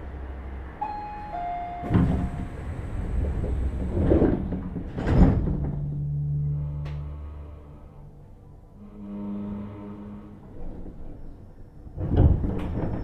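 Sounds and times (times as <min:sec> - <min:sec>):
steady low hum: 0:00.0 - 0:10.6
sliding doors clunking shut: 0:01.3 - 0:06.0, 0:12.0 - 0:13.0
train door knock: 0:01.8 - 0:02.6.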